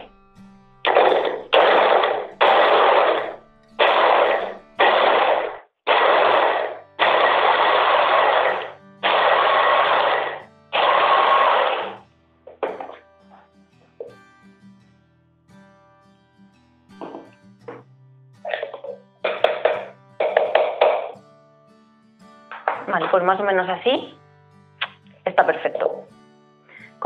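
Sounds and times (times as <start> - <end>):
electric chopper pulsing: 0.9 - 12.0.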